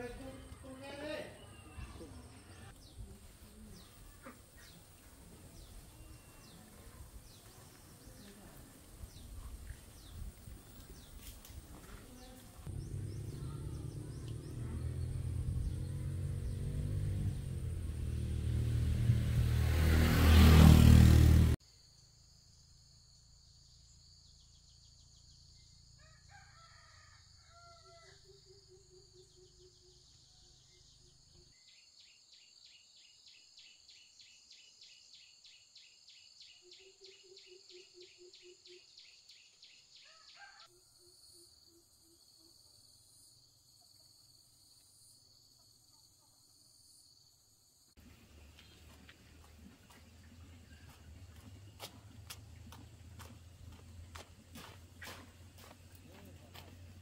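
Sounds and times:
bird calls and chirping trill: 5.5 - 11.3, 28.3 - 42.5
distant rooster crowing: 26.0 - 28.5, 40.1 - 40.9.

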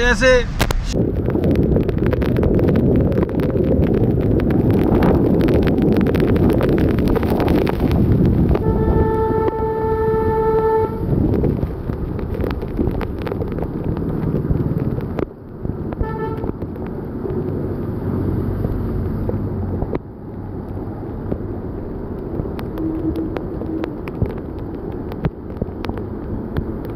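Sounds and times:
heavy rain: 0.0 - 26.9
tyres through flooded road: 1.2 - 26.9
vehicle horn honking: 8.6 - 11.0, 16.0 - 16.5.

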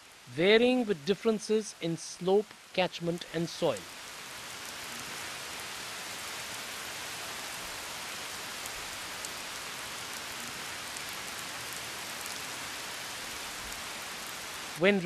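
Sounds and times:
steady rain: 0.0 - 15.0
faint raindrop ticks: 2.4 - 2.7, 7.5 - 14.8.

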